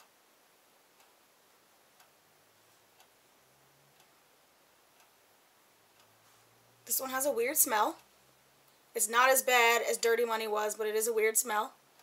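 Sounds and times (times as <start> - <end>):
faint regular tick: 0.9 - 1.3, 1.9 - 3.2, 4.9 - 5.2.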